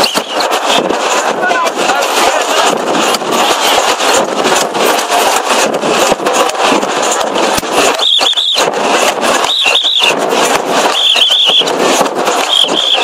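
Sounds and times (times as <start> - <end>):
whistle trills: 0.0 - 0.5, 7.9 - 8.7, 9.4 - 10.2, 10.9 - 11.7, 12.4 - 13.0
loud crowd din: 0.0 - 13.0
sharp cracks: 0.0 - 13.0.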